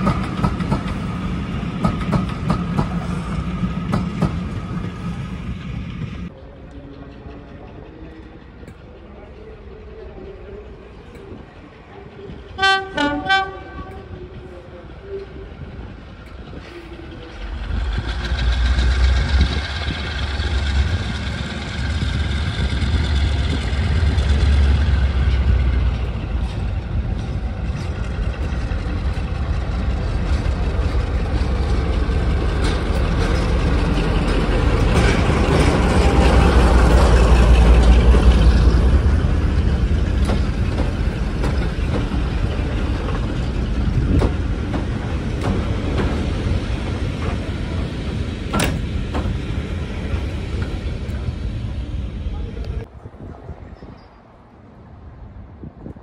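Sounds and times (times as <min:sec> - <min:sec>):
diesel locomotive idling: 0:00.0 - 0:52.9
diesel locomotive passing: 0:00.0 - 0:56.0
train wheel knocks: 0:40.1 - 0:43.3, 0:43.9 - 0:46.5, 0:48.4 - 0:49.4.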